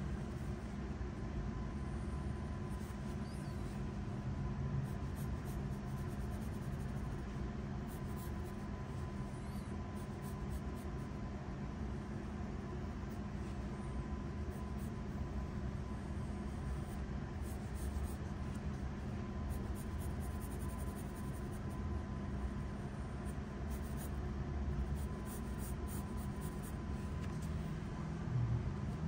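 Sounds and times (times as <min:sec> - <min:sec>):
low background hum: 0:00.0 - 0:29.0
pencil scratching on paper: 0:01.8 - 0:04.0, 0:04.8 - 0:11.1, 0:16.3 - 0:21.8, 0:22.4 - 0:27.7.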